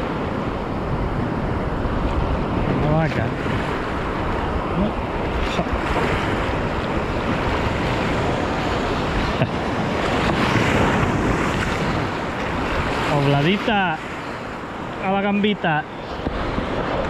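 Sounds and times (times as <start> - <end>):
sea surf washing: 0.0 - 17.0
wind buffeting microphone: 0.0 - 17.0.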